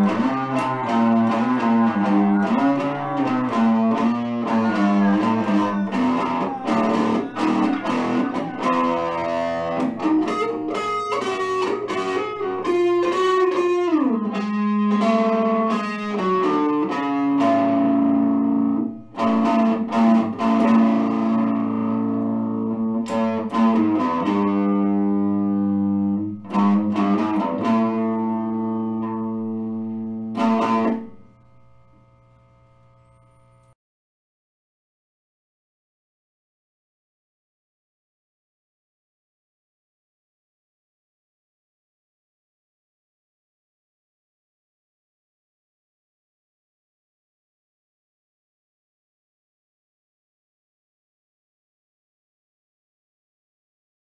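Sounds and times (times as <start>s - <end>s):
guitar-led band music: 0.0s - 31.3s.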